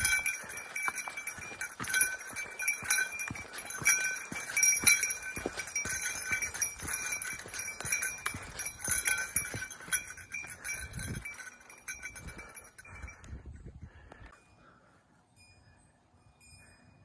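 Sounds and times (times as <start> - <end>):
bell jingling: 0.0 - 13.3
footsteps on dirt trail: 0.0 - 13.5.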